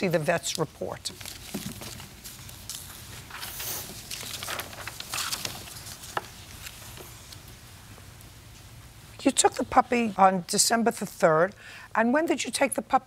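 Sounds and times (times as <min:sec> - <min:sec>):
paper rustling and shuffling: 0:00.0 - 0:07.6.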